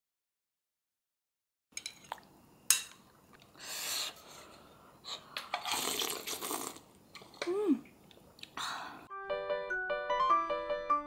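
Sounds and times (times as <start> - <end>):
soft breathy noise: 8.6 - 9.1.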